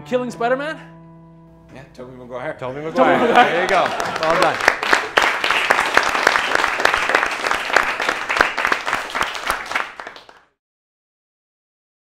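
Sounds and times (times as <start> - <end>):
audience applauding: 3.0 - 10.6.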